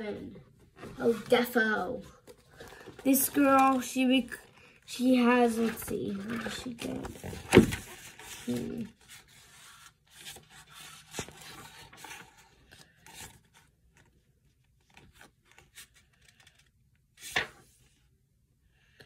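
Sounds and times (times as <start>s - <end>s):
book pages flipping and rustling: 0.6s - 18.0s.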